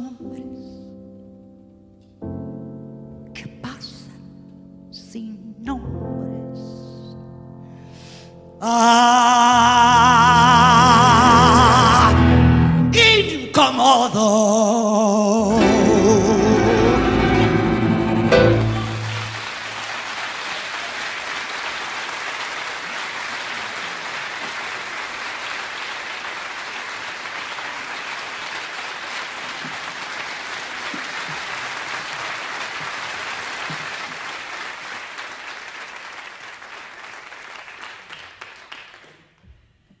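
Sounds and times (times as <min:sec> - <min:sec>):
audience applauding: 0:15.5 - 0:39.4.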